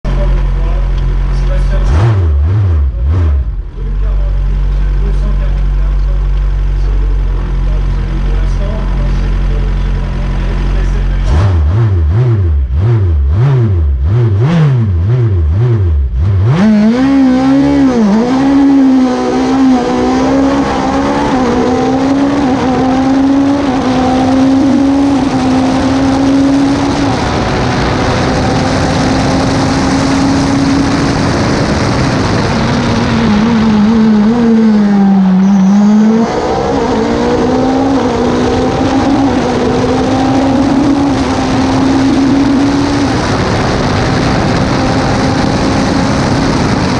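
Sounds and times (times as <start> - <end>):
race car engine revving: 0.0 - 46.9
wind noise: 16.6 - 46.9.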